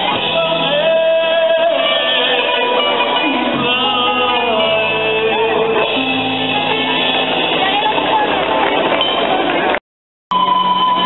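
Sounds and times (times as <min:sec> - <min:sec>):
man singing into a microphone: 0:00.0 - 0:06.6
band with guitar: 0:00.0 - 0:11.0.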